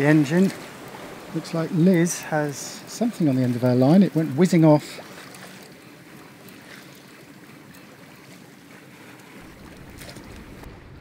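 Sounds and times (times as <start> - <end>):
water rushing along hull: 0.0 - 11.0
low rumble: 9.4 - 11.0.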